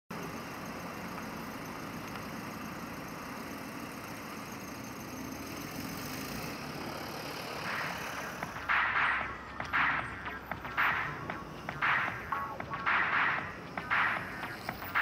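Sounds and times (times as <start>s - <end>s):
street traffic noise: 0.1s - 15.0s
car passing close by: 5.6s - 10.0s
loud sharp hits: 7.7s - 15.0s.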